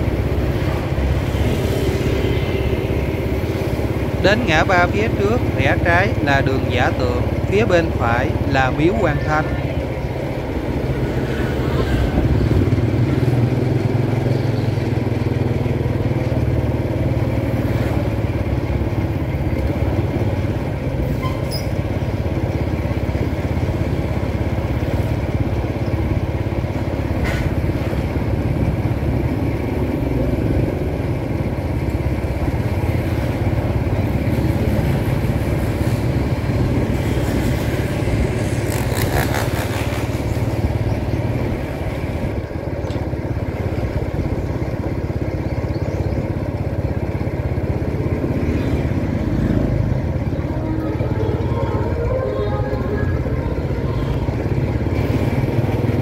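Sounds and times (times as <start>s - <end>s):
motorbike engine running: 0.0s - 56.0s
traffic noise: 0.0s - 56.0s.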